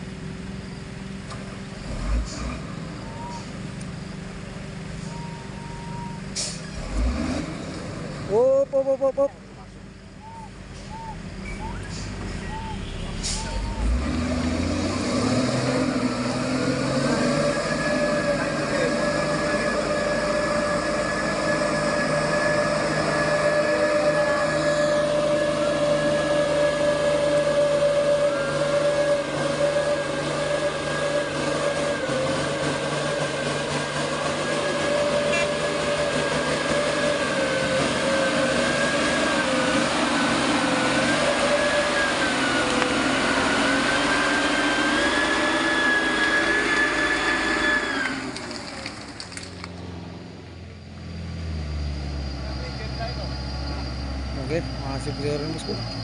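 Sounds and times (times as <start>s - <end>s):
truck diesel engine labouring: 0.0s - 56.0s
constant whine: 17.4s - 51.4s.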